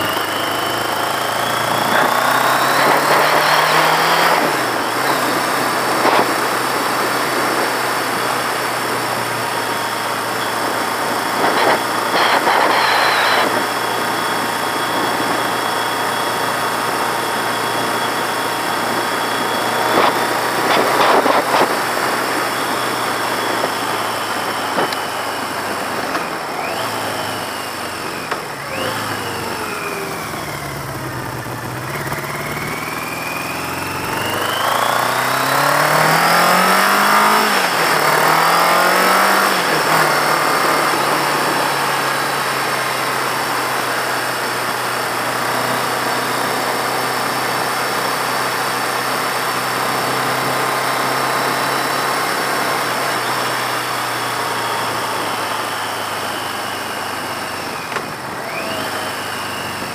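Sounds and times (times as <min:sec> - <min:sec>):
motorcycle engine running: 0:00.0 - 0:59.9
wind rushing over microphone: 0:19.7 - 0:26.8.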